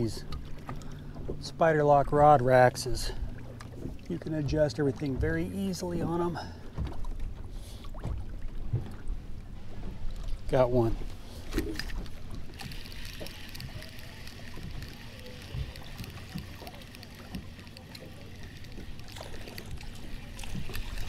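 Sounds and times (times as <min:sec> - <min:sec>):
water lapping against boat: 0:00.0 - 0:21.0
fishing reel ticking: 0:11.0 - 0:21.0.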